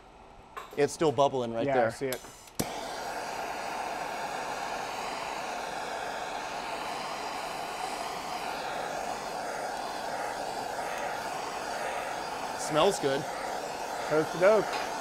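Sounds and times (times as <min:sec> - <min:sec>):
gas torch hissing: 0:01.9 - 0:15.0.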